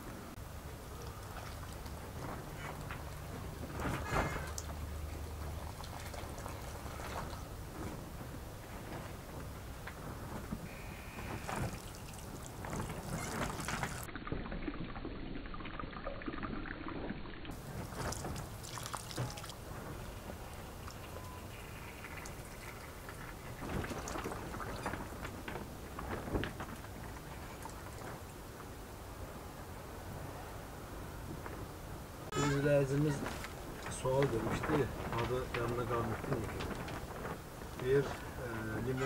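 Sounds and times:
hose water pouring onto soil: 0:00.5 - 0:07.7, 0:10.7 - 0:28.3, 0:37.7 - 0:39.0.

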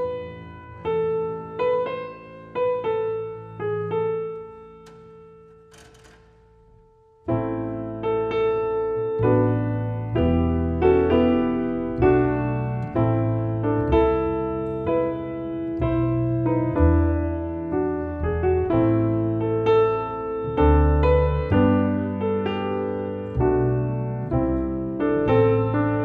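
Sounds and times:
piano chords: 0:00.0 - 0:26.0
double bass plucking: 0:05.8 - 0:26.0.

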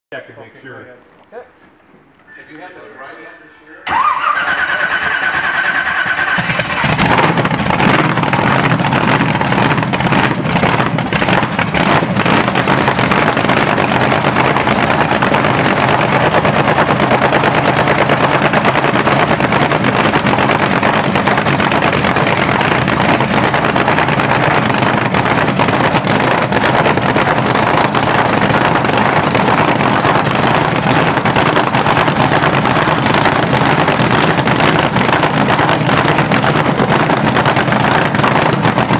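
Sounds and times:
starter cranking with whine: 0:03.8 - 0:08.5
sharp exhaust cracks: 0:03.8 - 0:38.9
loud racing engine running: 0:04.5 - 0:38.9.

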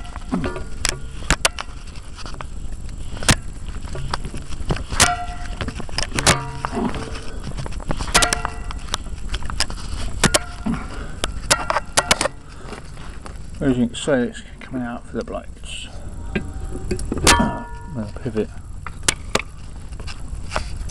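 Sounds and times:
bearings knocking and squeaking: 0:05.0 - 0:07.2.

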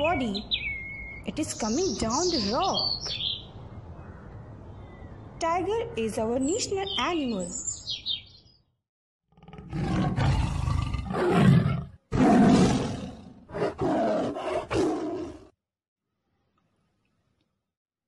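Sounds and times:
tiger roaring: 0:09.3 - 0:15.5.

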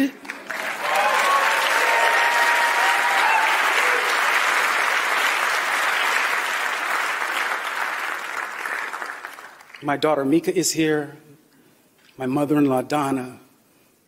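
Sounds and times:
audience applauding: 0:00.0 - 0:09.8
person cheering: 0:00.8 - 0:04.2.

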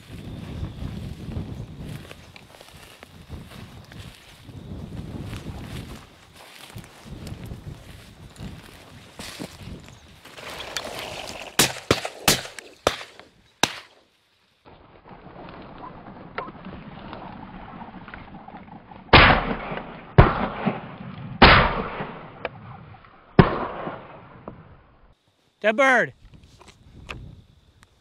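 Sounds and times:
shotgun shots: 0:11.6 - 0:14.0, 0:19.1 - 0:22.4, 0:23.4 - 0:24.4.

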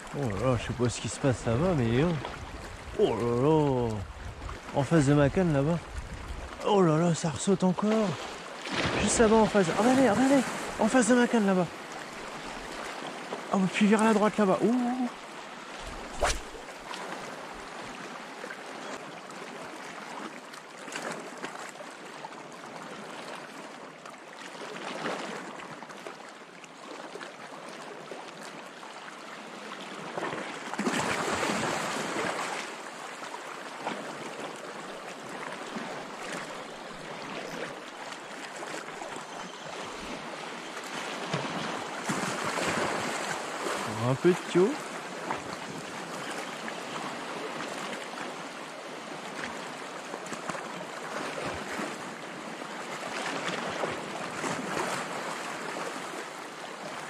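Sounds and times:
waves washing against rocks: 0:06.6 - 0:11.5.

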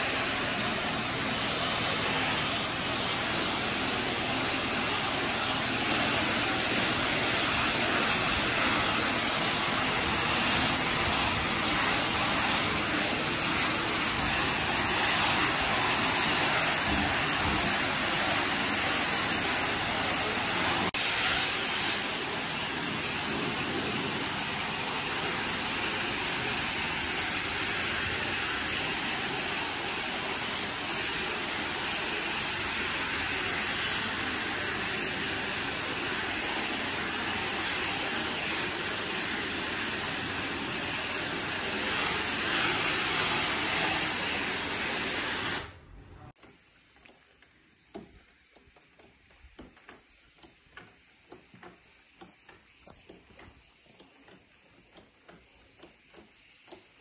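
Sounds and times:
pressure washer spray hissing: 0:00.0 - 0:57.0.

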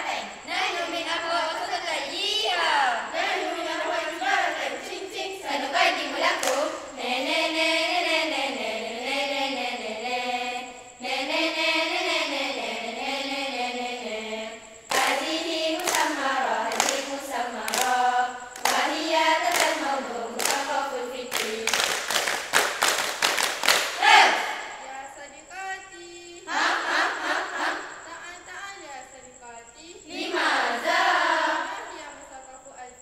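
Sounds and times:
girls chanting in unison: 0:00.0 - 0:32.8
sharp hand claps: 0:06.4 - 0:06.7, 0:14.9 - 0:15.2, 0:15.8 - 0:17.0, 0:17.7 - 0:18.0, 0:18.6 - 0:19.8, 0:20.4 - 0:20.7, 0:21.3 - 0:24.6.

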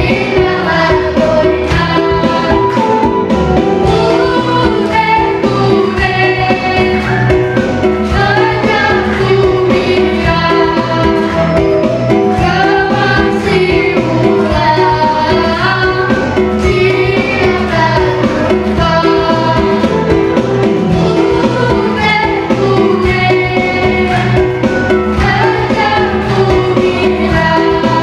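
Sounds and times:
backing music with steady beat: 0:00.0 - 0:28.0
girl singing into microphone: 0:03.8 - 0:07.3, 0:08.1 - 0:11.7, 0:12.4 - 0:20.1, 0:21.0 - 0:24.4, 0:25.2 - 0:28.0.

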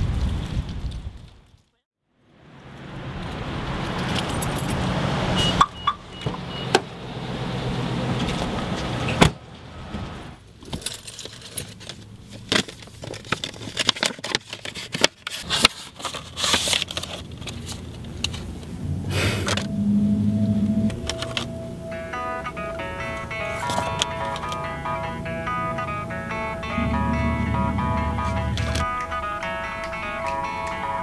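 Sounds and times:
keys jangling: 0:04.0 - 0:04.8, 0:10.6 - 0:12.0
steady car hum: 0:17.0 - 0:31.0.

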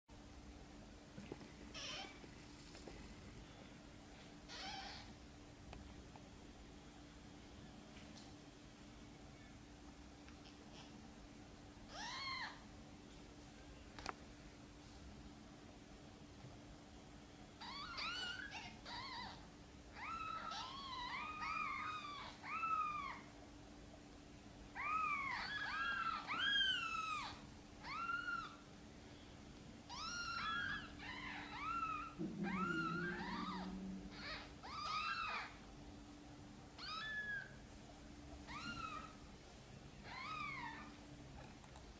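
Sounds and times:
kittens mewing: 0:04.5 - 0:05.1, 0:29.9 - 0:35.6.

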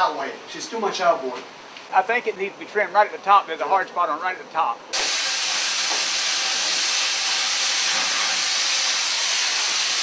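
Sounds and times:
cutting torch hissing: 0:04.9 - 0:10.0.

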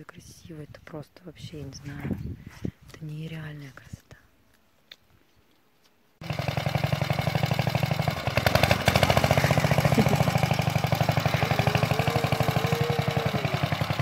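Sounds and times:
single-cylinder tractor engine chugging: 0:06.2 - 0:14.0.

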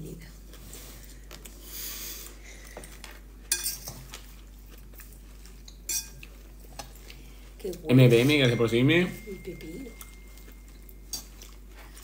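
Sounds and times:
fork rustling salad leaves: 0:00.4 - 0:12.0
fork clinking against bowl: 0:03.5 - 0:04.0, 0:05.8 - 0:06.2, 0:09.9 - 0:11.6.

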